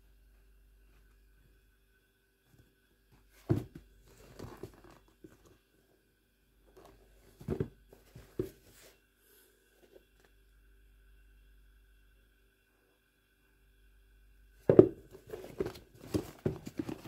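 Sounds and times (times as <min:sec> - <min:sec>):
shoes knocking: 0:14.7 - 0:17.0.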